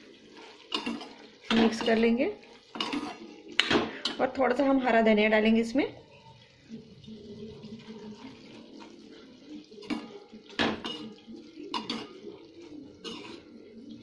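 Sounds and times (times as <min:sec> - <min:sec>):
metal spatula scraping pot: 0:00.2 - 0:04.2, 0:13.0 - 0:13.8
spatula clinking on pot: 0:00.6 - 0:02.1.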